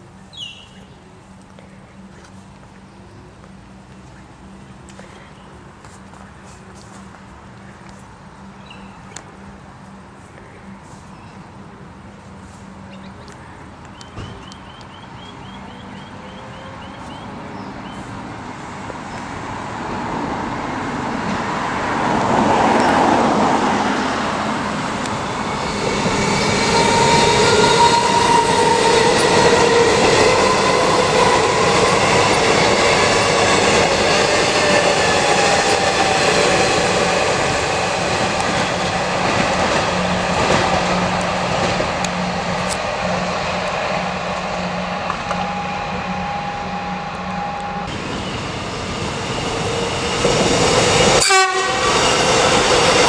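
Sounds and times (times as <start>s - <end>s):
wheels rumbling on rail: 0.0s - 53.0s
train motor whine: 43.6s - 53.0s.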